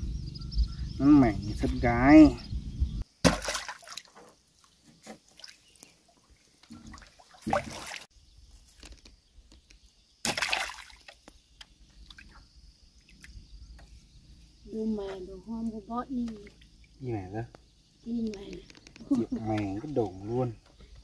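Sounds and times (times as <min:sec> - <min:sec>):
water splashes: 0:03.2 - 0:04.3, 0:05.1 - 0:08.1, 0:10.2 - 0:11.3
water sloshing and dripping: 0:03.2 - 0:08.1, 0:10.2 - 0:13.4, 0:16.2 - 0:17.0.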